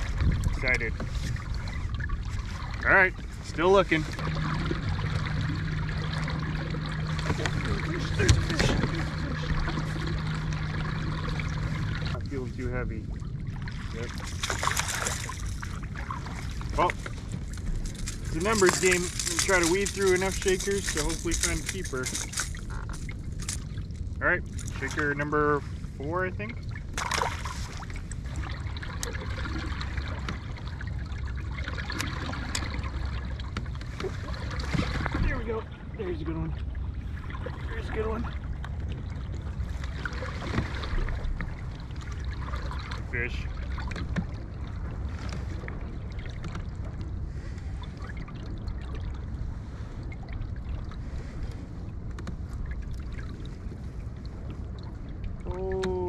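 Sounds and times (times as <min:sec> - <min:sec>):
steady low rumble: 0:00.0 - 0:56.0
water lapping against kayak hull: 0:00.0 - 0:56.0
fish splashing: 0:04.0 - 0:12.2, 0:13.2 - 0:25.0, 0:26.7 - 0:35.2.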